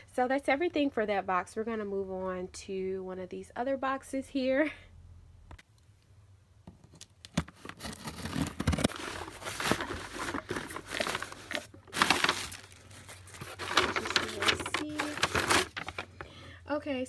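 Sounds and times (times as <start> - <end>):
packaging rustling and crinkling: 7.2 - 16.3.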